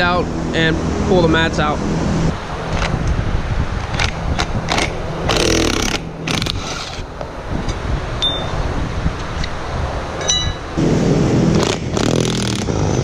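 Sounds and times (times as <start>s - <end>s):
steady low hum: 0.0s - 13.0s
impact driver running: 4.7s - 6.9s, 11.6s - 13.0s.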